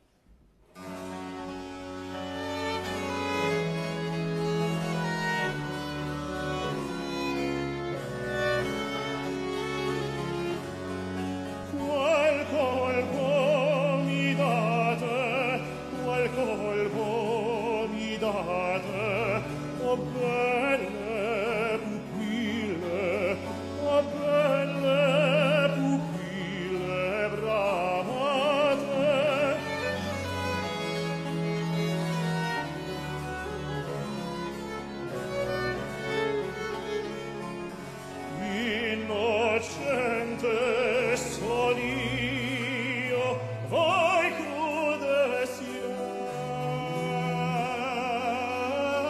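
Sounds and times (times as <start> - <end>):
baroque string ensemble: 0.0 - 49.0
operatic tenor singing: 0.8 - 49.0.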